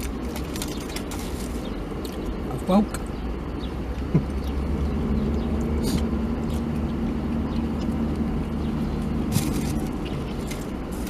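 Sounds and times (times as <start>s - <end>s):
food wrapper rustling: 0.0s - 1.8s, 9.3s - 11.0s
low hum inside car cabin: 0.0s - 11.0s.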